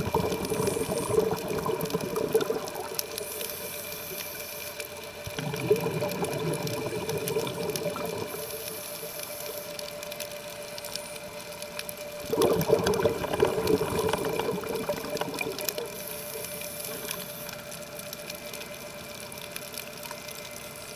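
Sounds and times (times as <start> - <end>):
scuba exhalation bubbles: 0.0 - 3.3, 5.2 - 8.6, 12.2 - 17.3
underwater scooter hum: 0.0 - 20.9.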